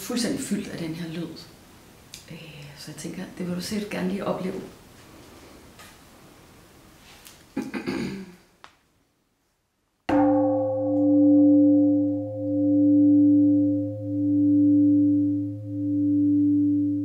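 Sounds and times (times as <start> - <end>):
singing bowl ringing: 10.1 - 17.0.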